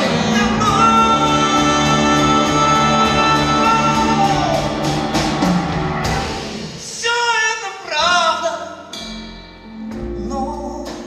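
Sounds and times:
pulsing bass line: 0.0 - 6.6
live band playing: 0.0 - 11.0.

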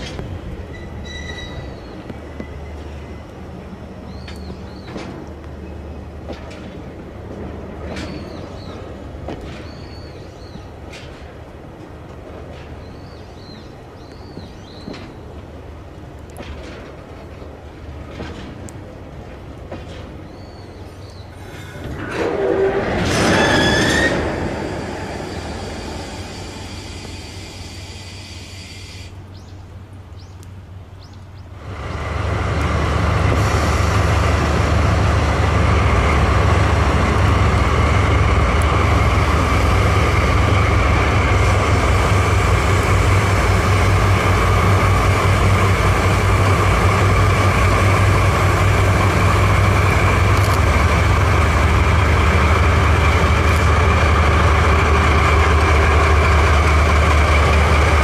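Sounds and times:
locomotive whine: 0.0 - 9.3, 21.4 - 29.3, 31.5 - 58.0
train wagons rolling past: 0.0 - 29.6, 31.4 - 58.0
diesel locomotive engine rumble: 0.0 - 58.0.

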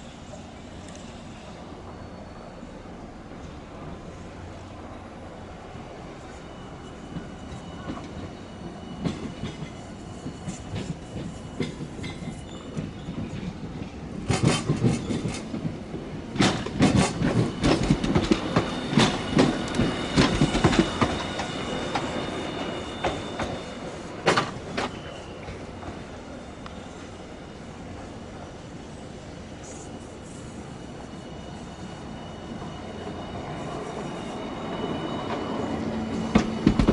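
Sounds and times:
high wheel squeal: 0.0 - 13.4, 16.5 - 36.9
wheels clacking over rail joints: 35.2 - 36.9.

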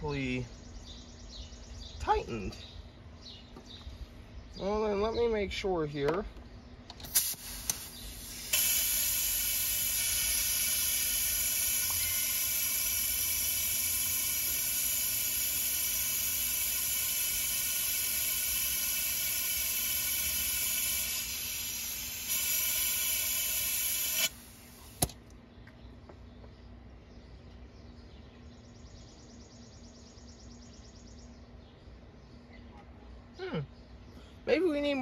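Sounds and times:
compressed air hissing: 7.0 - 25.1.

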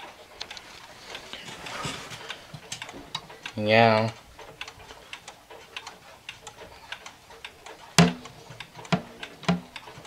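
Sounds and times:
pendulum clock ticking: 0.0 - 10.0
wooden knocks on clock case: 8.0 - 8.2, 8.9 - 9.8.

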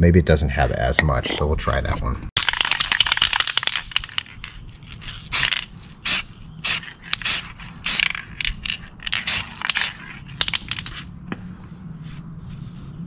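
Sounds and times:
spray paint can hissing: 5.0 - 11.0.

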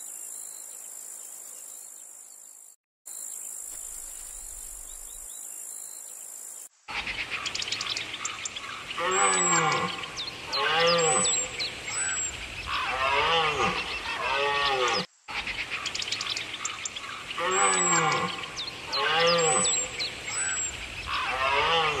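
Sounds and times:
animal calling: 8.3 - 15.6, 16.6 - 22.0.

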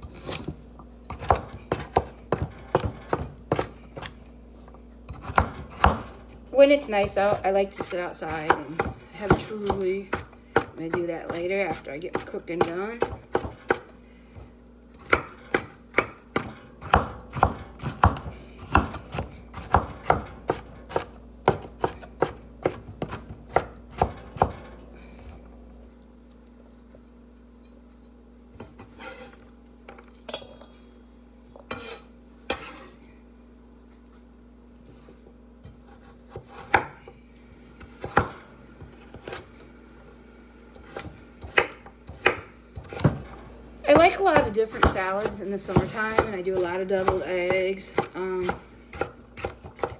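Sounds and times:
knife chopping on wooden board: 0.1 - 4.2, 5.1 - 6.2, 7.0 - 13.9, 15.0 - 24.6, 35.7 - 37.0, 40.8 - 43.2, 44.0 - 49.9.

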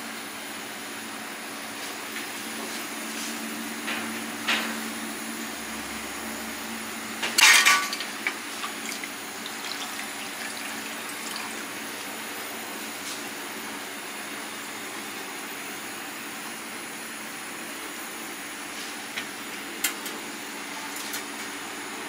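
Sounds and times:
steady background hum: 0.0 - 22.0
metal basket clattering on tray: 7.3 - 8.1.

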